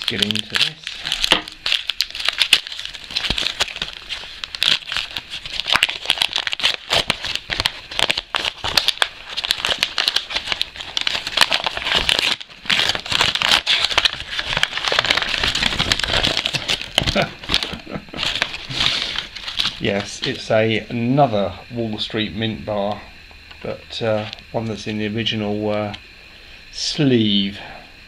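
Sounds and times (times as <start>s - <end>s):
paper wrapping crinkling: 0.0s - 20.5s.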